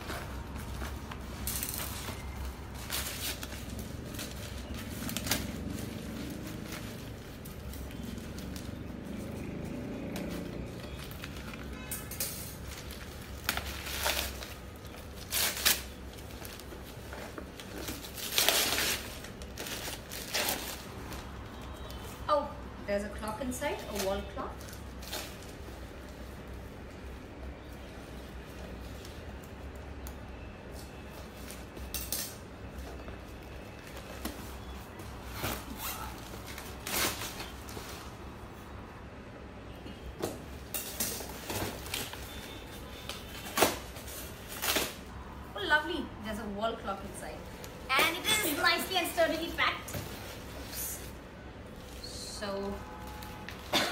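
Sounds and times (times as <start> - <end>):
wrapping paper tearing and crumpling: 0.0 - 9.0, 12.4 - 21.2, 35.3 - 37.8.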